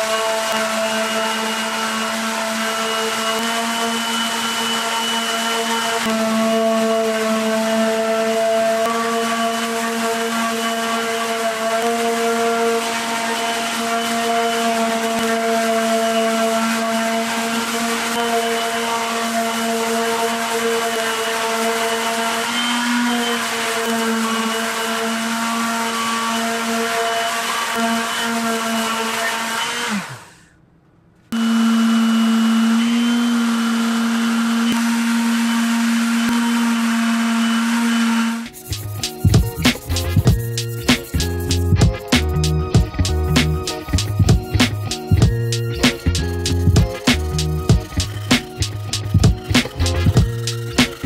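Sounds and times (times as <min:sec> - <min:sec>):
sander motor hum: 0:00.0 - 0:30.6, 0:31.3 - 0:51.0
sandpaper hissing on wood: 0:38.3 - 0:51.0.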